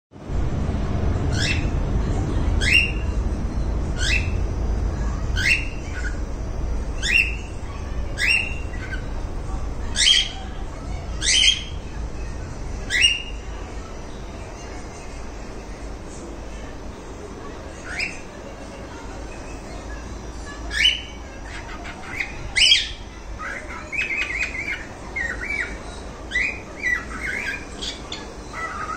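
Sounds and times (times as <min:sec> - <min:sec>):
low rumble: 0:00.2 - 0:16.8.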